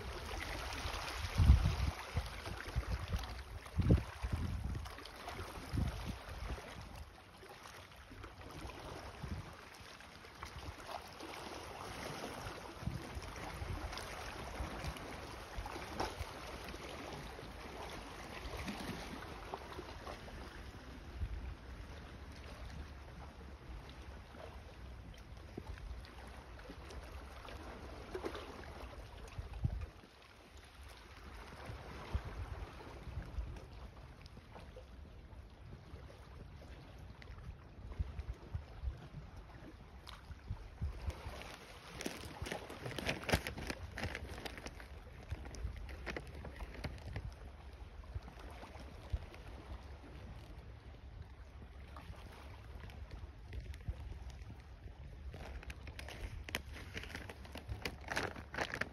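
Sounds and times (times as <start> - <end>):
small waves lapping rocky shore: 0.0 - 58.9
wind gusting on microphone: 1.2 - 4.8.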